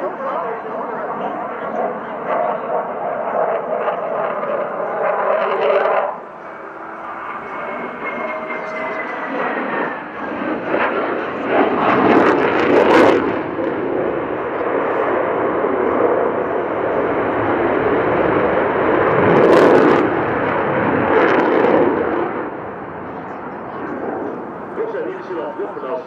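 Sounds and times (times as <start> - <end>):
fighter jet engines roaring: 0.0 - 26.0.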